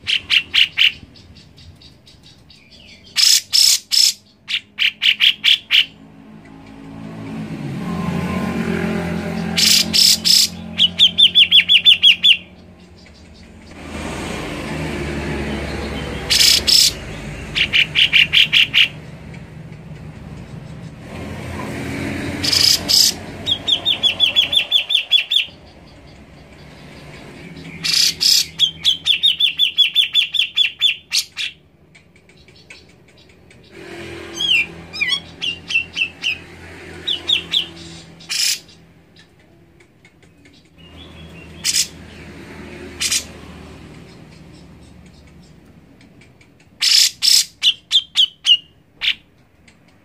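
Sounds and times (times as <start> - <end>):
bulbul chattering call: 0.0 - 6.0, 9.4 - 13.7, 16.0 - 17.0, 22.4 - 36.4, 37.1 - 42.2.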